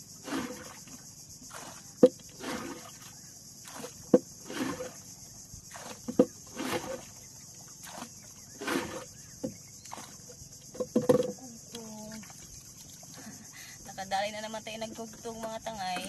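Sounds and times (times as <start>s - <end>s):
paddle swishing through water: 0.0s - 11.4s, 12.0s - 13.5s
paddle knocking against hull: 0.2s - 5.1s, 5.7s - 13.2s.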